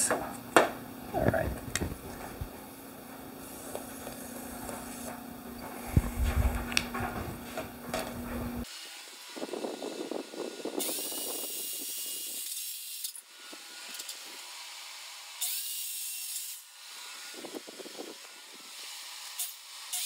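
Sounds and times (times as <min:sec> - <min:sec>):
circular saw cutting planks: 0:08.6 - 0:20.0.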